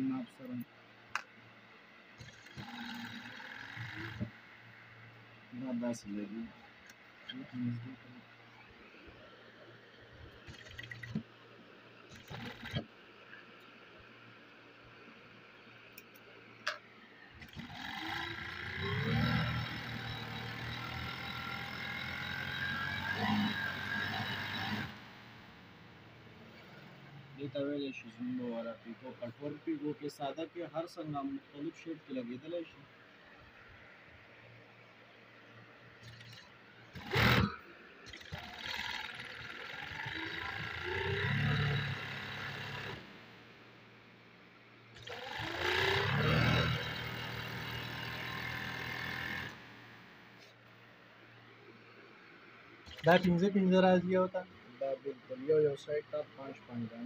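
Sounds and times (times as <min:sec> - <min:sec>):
overlock sewing machine stitching: 0:02.2 - 0:04.4, 0:10.4 - 0:11.3, 0:12.1 - 0:12.9, 0:17.4 - 0:25.3, 0:36.0 - 0:43.3, 0:45.0 - 0:49.7, 0:52.9 - 0:53.4.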